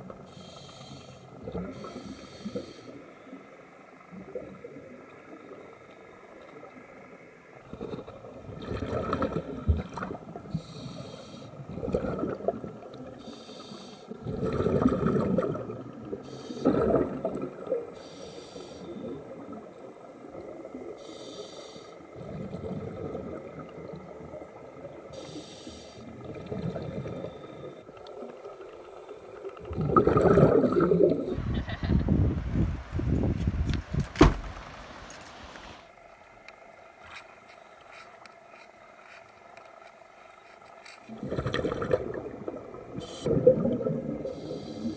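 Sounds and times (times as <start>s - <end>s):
regulator hissing inhalations: 0.3s - 3.1s, 10.5s - 11.6s, 13.2s - 14.2s, 16.2s - 16.8s, 18.0s - 19.1s, 21.0s - 22.0s, 25.1s - 26.1s, 44.2s - 44.9s
exhaled air bubbling: 7.6s - 13.3s, 14.1s - 28.7s, 29.5s - 33.2s, 41.1s - 44.9s.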